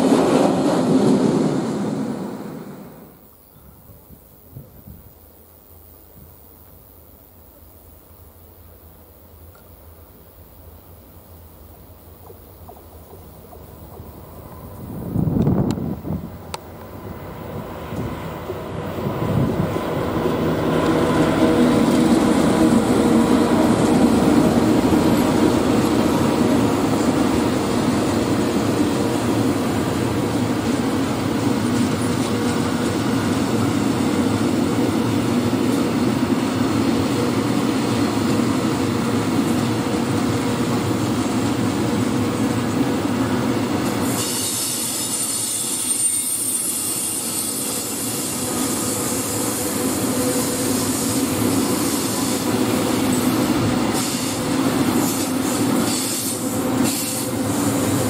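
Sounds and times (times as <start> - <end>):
freight train rumbling past: 0.0 - 5.1, 7.3 - 58.0
high-pitched wheel squeal: 44.2 - 49.6.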